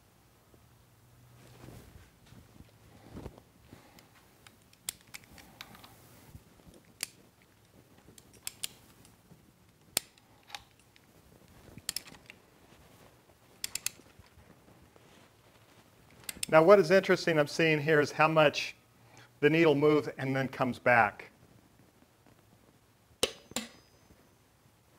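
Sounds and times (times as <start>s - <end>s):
torque wrench metallic clicks: 13.6s - 14.0s.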